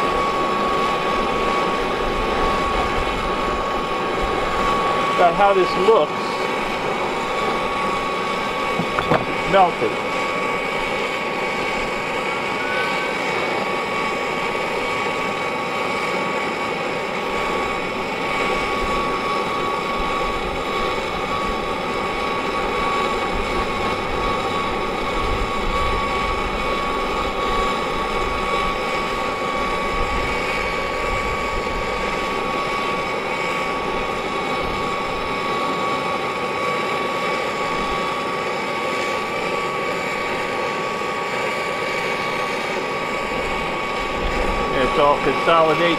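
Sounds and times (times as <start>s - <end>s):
gas torch flame rushing: 0.0s - 14.9s
steady whistle: 12.2s - 13.6s.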